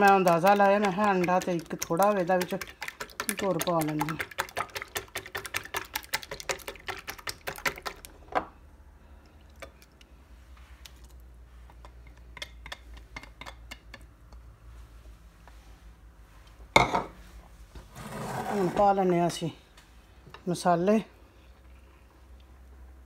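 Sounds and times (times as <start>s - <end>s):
whisk beating eggs in bowl: 0.0s - 8.1s
whisk tapping bowl rim: 0.0s - 8.1s.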